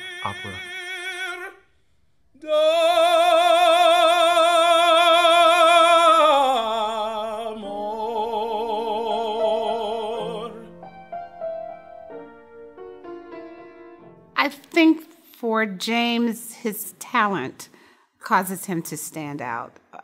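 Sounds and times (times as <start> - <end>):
man singing opera: 0.0 - 1.6, 2.4 - 10.8
piano notes: 9.1 - 14.9.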